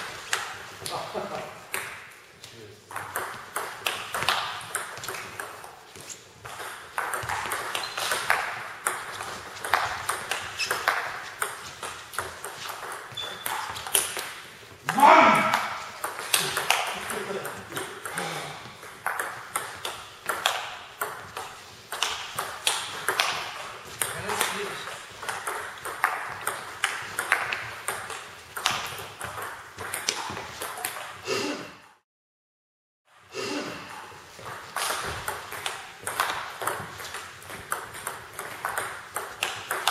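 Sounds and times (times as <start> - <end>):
table tennis ball hits: 0.0 - 2.2, 2.9 - 31.2, 33.9 - 39.9.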